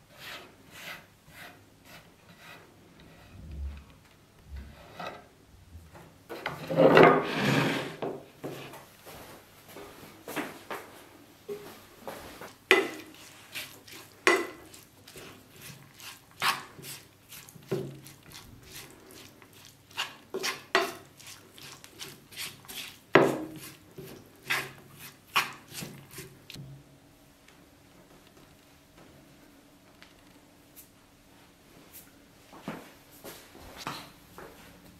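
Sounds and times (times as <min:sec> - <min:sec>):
wooden spatula scraping frying pan: 0:00.1 - 0:03.4, 0:04.7 - 0:05.3, 0:06.3 - 0:08.8, 0:12.4 - 0:26.6.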